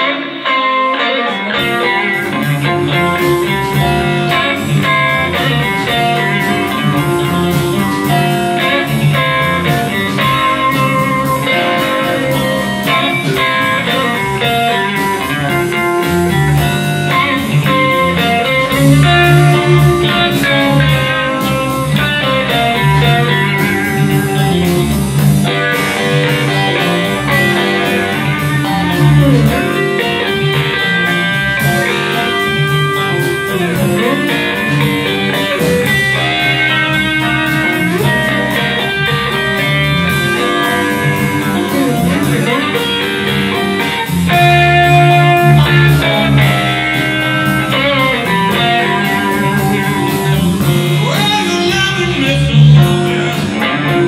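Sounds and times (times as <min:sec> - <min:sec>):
live blues band playing: 0:00.0 - 0:54.0.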